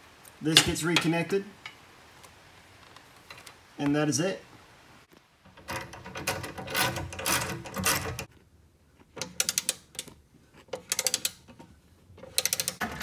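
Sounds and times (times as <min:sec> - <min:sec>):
ratcheting wrench clicking: 0:09.2 - 0:10.1, 0:10.8 - 0:11.4, 0:12.2 - 0:12.8.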